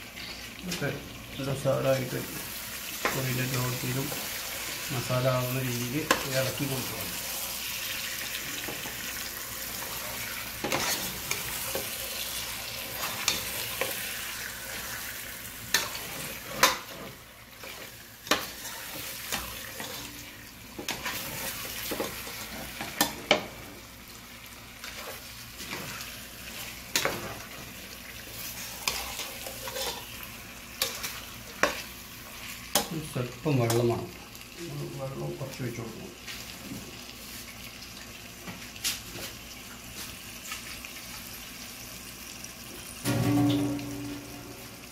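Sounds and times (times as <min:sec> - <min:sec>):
chicken sizzling in a pot: 0:00.0 - 0:44.9
spoon scraping a steel pot: 0:10.6 - 0:11.1.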